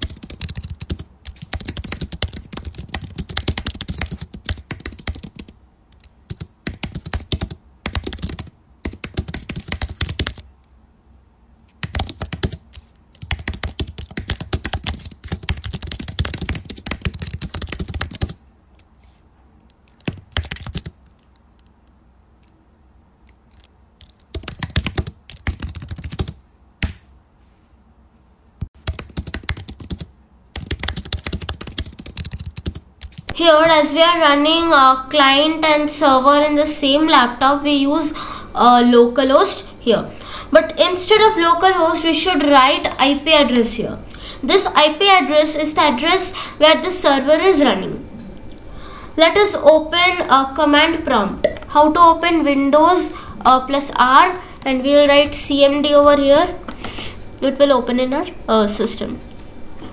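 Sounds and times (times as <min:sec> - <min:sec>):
keyboard typing: 0:00.0 - 0:10.5, 0:11.7 - 0:18.9, 0:19.6 - 0:22.6, 0:23.2 - 0:27.0, 0:28.7 - 0:33.4.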